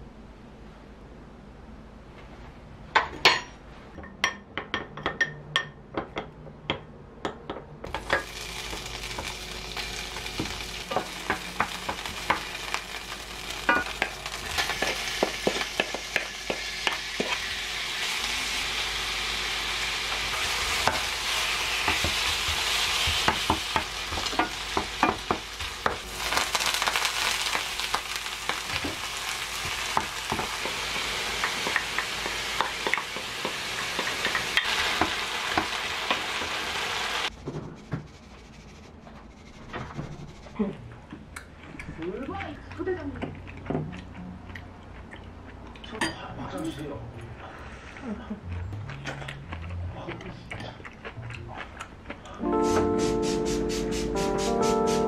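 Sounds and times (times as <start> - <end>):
meat sizzling in a frying pan: 7.9 - 37.3
utensils clicking in a pan: 20.3 - 36.2.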